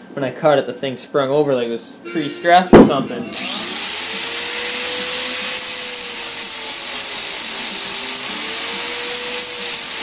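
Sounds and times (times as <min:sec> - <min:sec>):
power tool motor whine: 0:03.3 - 0:10.0.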